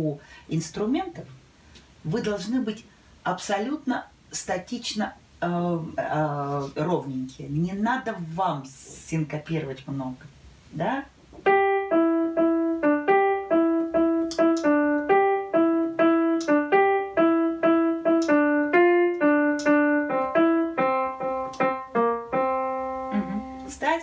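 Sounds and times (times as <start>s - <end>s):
digital piano melody: 11.4s - 24.0s.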